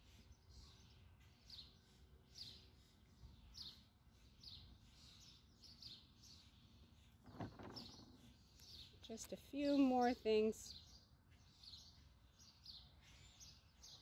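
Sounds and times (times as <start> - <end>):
songbird chirping: 0.0 - 14.0.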